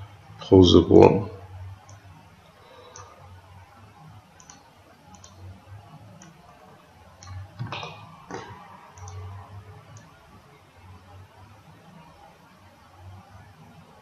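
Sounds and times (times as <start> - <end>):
faint low hum: 0.0 - 14.0
computer mouse clicking: 1.8 - 2.0, 2.8 - 3.2, 4.4 - 5.5, 7.2 - 10.2.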